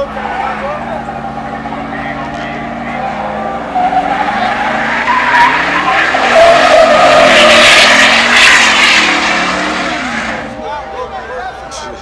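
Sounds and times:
tyres squealing: 0:00.0 - 0:10.6
car engine running: 0:00.0 - 0:12.0.

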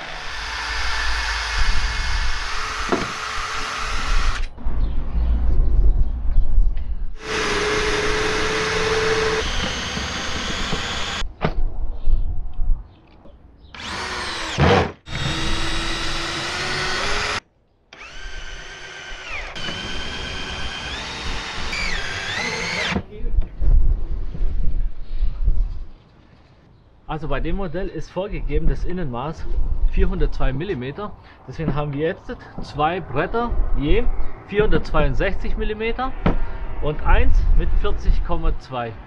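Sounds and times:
cordless drill whining: 0:00.0 - 0:04.5, 0:07.2 - 0:11.2, 0:13.8 - 0:23.0
power tools working wood: 0:00.0 - 0:04.5, 0:07.2 - 0:11.2, 0:13.8 - 0:17.4, 0:18.0 - 0:23.0.

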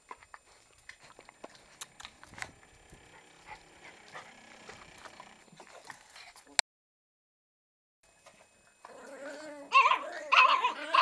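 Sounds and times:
puppies scuffling: 0:00.0 - 0:06.6
soft puppy noises: 0:00.0 - 0:06.6, 0:08.2 - 0:11.0.

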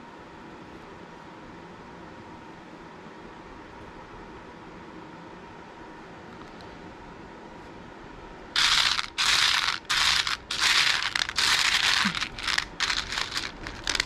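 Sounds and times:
plastic beads clattering in basket: 0:08.6 - 0:14.0.

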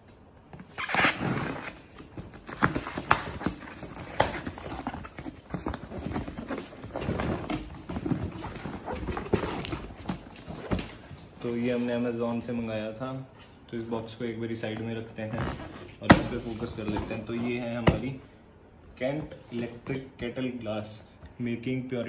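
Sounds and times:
cardboard rustling: 0:00.5 - 0:12.0, 0:15.2 - 0:18.0
packing tape tearing: 0:00.6 - 0:10.7.

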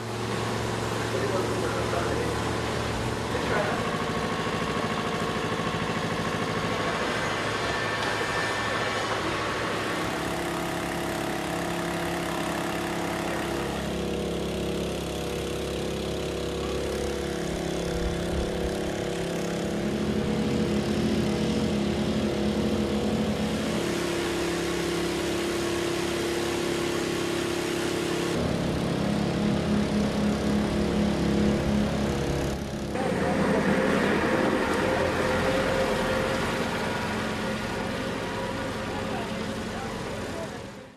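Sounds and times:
engines running: 0:00.0 - 0:40.9.

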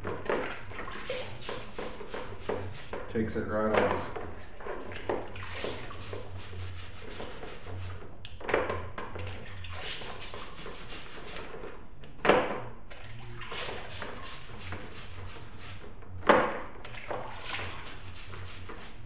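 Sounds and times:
brush scrubbing chain: 0:01.0 - 0:02.9, 0:05.5 - 0:08.0, 0:09.8 - 0:11.8, 0:13.5 - 0:15.8, 0:17.4 - 0:19.0.

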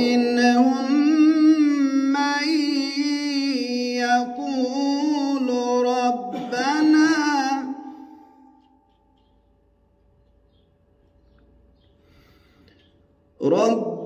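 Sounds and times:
man reciting in melodic chant: 0:00.0 - 0:08.4, 0:13.4 - 0:14.0.

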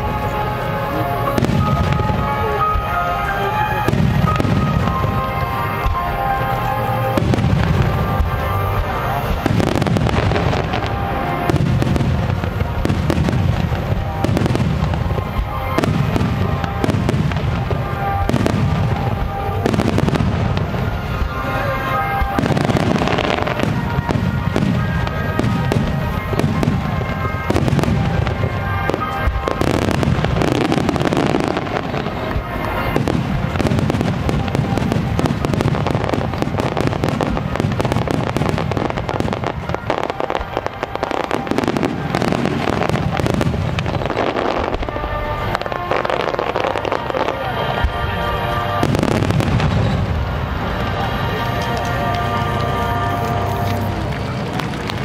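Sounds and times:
fireworks bursting: 0:00.0 - 0:55.0
music playing: 0:00.0 - 0:55.0.

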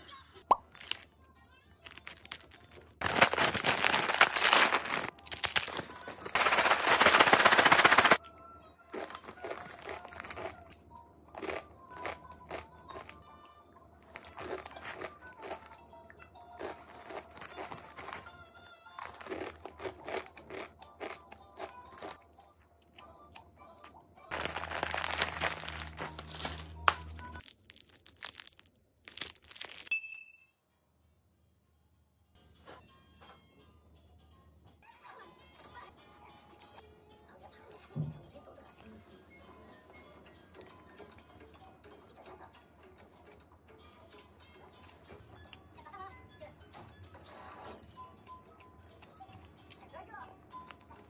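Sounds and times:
packaging crinkling: 0:00.6 - 0:01.1, 0:01.8 - 0:08.2, 0:09.0 - 0:10.6, 0:14.1 - 0:15.7, 0:16.6 - 0:18.4, 0:19.0 - 0:22.2, 0:24.3 - 0:29.9
soft background music: 0:08.2 - 0:27.5, 0:32.3 - 0:51.0.

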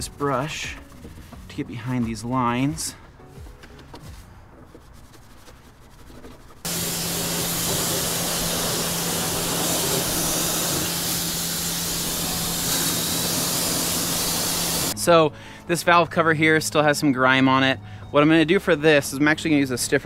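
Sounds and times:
pressure washer spraying water: 0:06.6 - 0:15.0.

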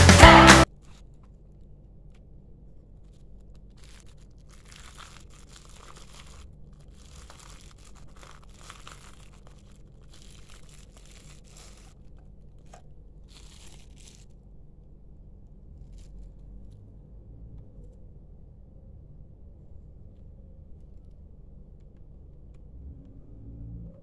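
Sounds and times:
bubble wrap crinkling: 0:02.9 - 0:14.7.

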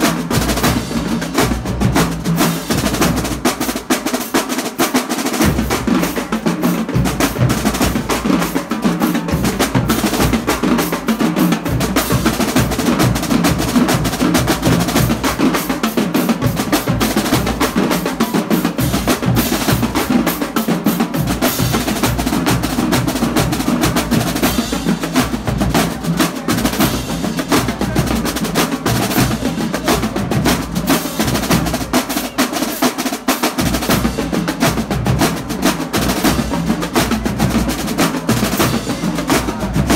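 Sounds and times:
bass drums: 0:00.0 - 0:04.0, 0:33.6 - 0:39.9
marching snare drum rolls: 0:00.0 - 0:39.9.

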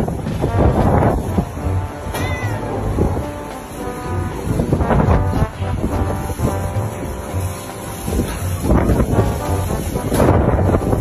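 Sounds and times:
background music: 0:00.0 - 0:11.0
cat meowing: 0:02.1 - 0:02.7.

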